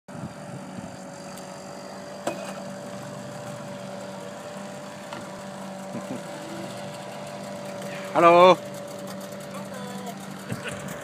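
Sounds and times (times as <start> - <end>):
engine running steadily: 0.1 - 11.0.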